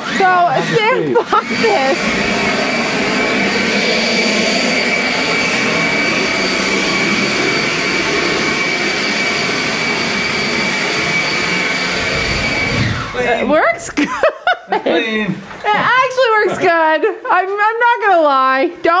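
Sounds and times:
electric leaf blower whine: 0.0 - 14.3.

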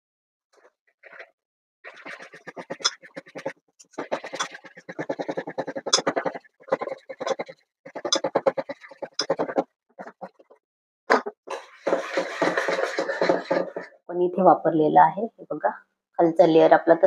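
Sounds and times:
spoon scraping metal bowl: 1.9 - 10.5, 11.5 - 14.0.

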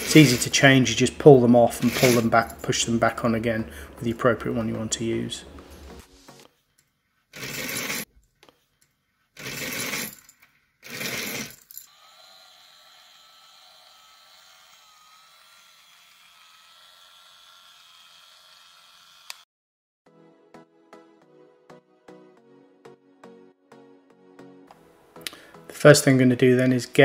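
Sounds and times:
bead chain rattling: 9.4 - 11.9
blind motor humming and whining: 11.9 - 19.4.

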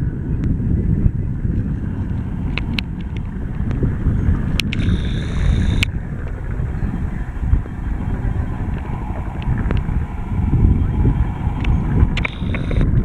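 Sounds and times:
helicopters running: 0.0 - 13.0
wind on microphone: 0.0 - 13.0
sharp clicks: 4.6 - 5.9, 11.6 - 13.0.

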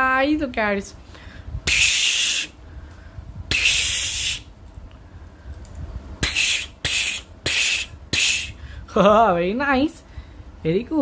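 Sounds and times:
person making whoosh sounds: 3.5 - 4.5, 6.2 - 8.6.

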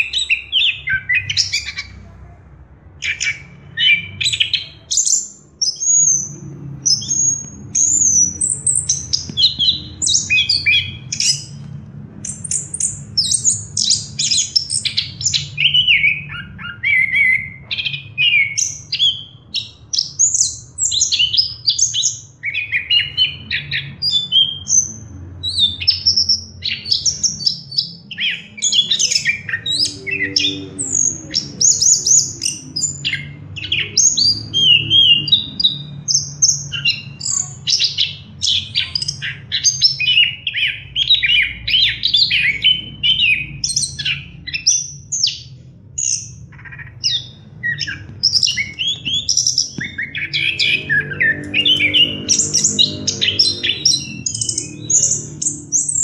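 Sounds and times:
thrush singing: 46.9 - 56.0.

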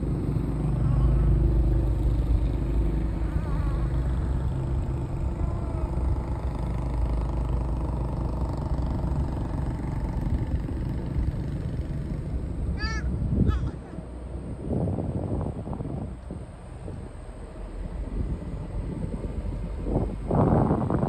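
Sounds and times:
car engine and tyre rumble: 0.0 - 21.0.

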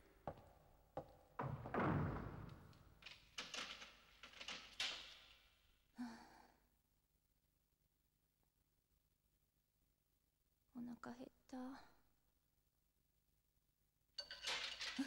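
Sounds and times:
heavy wooden door thud: 1.4 - 2.8
door clattering: 1.4 - 5.5, 14.2 - 15.0.

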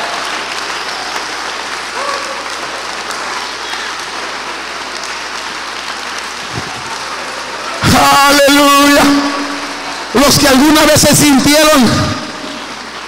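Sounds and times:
congregation applauding: 0.0 - 13.0.

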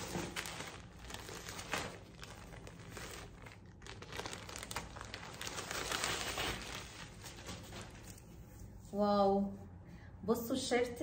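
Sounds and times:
plastic bag crinkling: 0.0 - 8.2.

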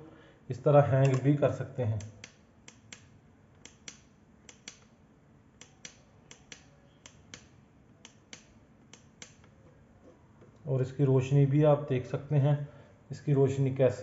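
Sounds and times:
faint sharp clicks: 2.0 - 4.9, 5.6 - 9.6.

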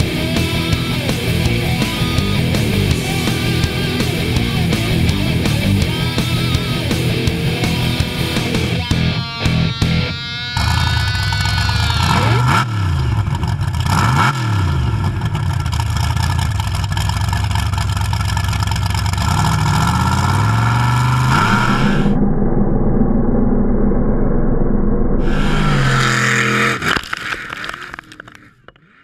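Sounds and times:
truck engine revving: 0.0 - 29.0
tires spinning in dirt: 10.6 - 22.2, 25.2 - 29.0
dirt clattering down: 25.6 - 29.0.

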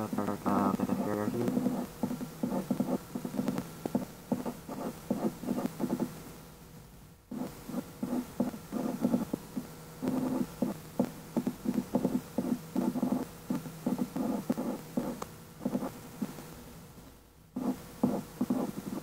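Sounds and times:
pen scratching on paper: 0.5 - 6.1, 7.3 - 9.4, 10.0 - 10.8, 11.7 - 13.3, 13.9 - 16.0, 17.6 - 19.0.

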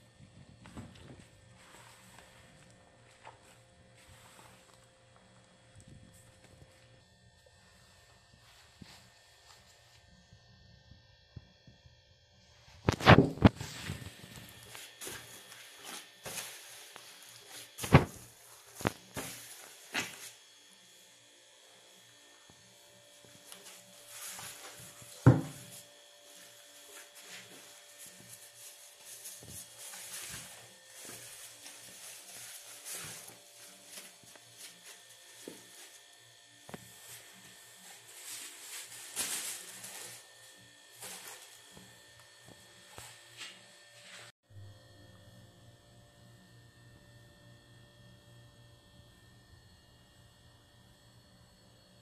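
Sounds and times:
faint steady hum: 0.0 - 52.0
hands kneading dough: 0.2 - 9.8.

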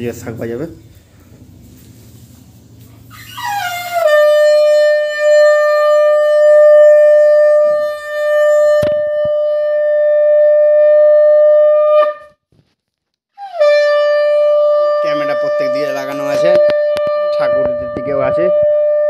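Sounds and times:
conch shell blast: 3.2 - 12.4, 13.4 - 19.0.

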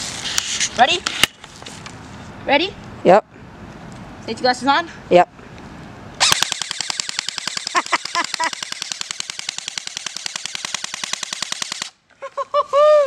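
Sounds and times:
bb gun rapid firing: 6.2 - 12.0.

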